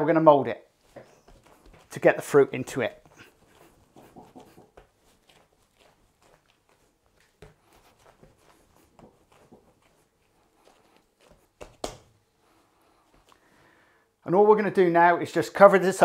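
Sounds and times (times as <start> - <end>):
hands patting and rubbing dough: 0.8 - 13.4.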